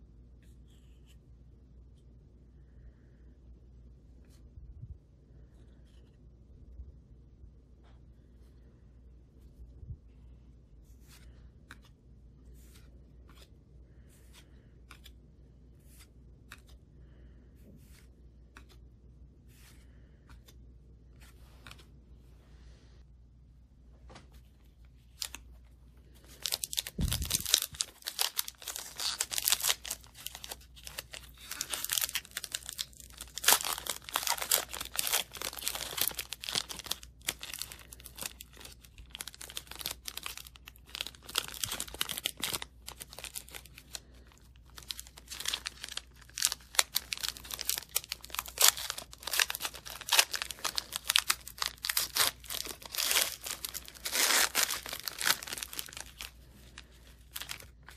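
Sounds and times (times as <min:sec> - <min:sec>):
foil wrapper tearing and crinkling: 0:26.4 - 0:44.0, 0:44.6 - 0:57.9.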